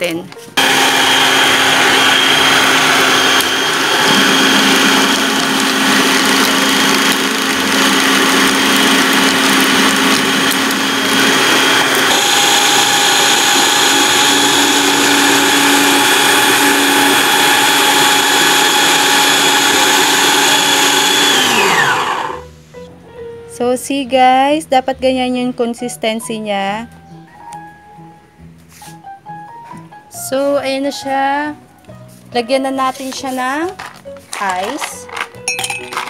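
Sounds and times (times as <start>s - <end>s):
food processor motor whining: 0.6s - 22.5s.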